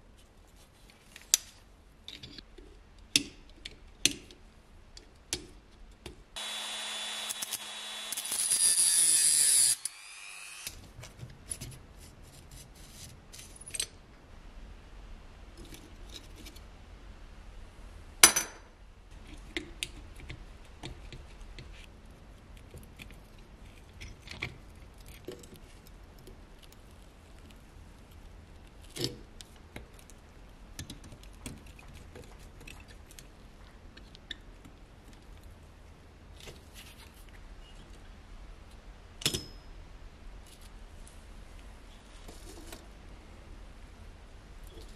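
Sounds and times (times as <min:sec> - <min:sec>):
sharp metallic clink: 0:39.3 - 0:39.7.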